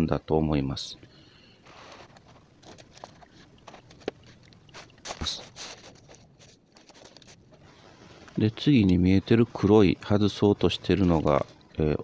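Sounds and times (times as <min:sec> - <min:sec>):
faint clicks and knocks: 0:01.9 - 0:05.2.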